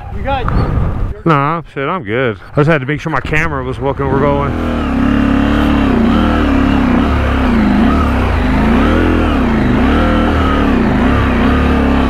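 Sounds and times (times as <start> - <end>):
motorcycle engine revving: 3.3 - 12.0.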